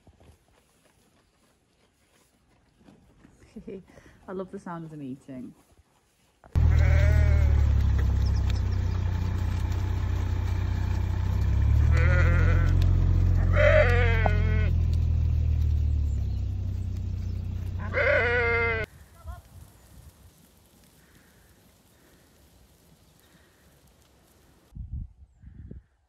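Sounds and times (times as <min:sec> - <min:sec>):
sheep bleating: 0:06.6 - 0:08.0, 0:11.6 - 0:15.0, 0:17.8 - 0:19.4.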